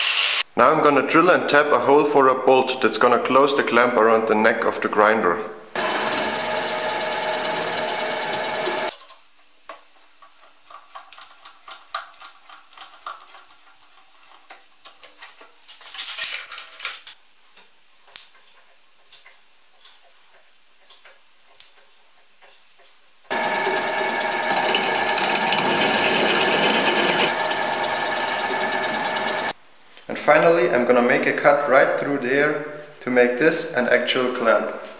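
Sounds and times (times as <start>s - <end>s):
drill press cutting steel: 5.8s - 8.9s, 23.3s - 29.5s.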